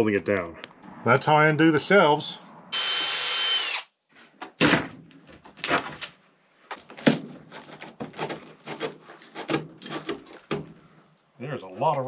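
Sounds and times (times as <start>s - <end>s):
cordless drill spinning down: 2.8s - 3.9s
wood scraping: 4.1s - 11.0s
sharp knocks and bangs: 4.4s - 5.1s.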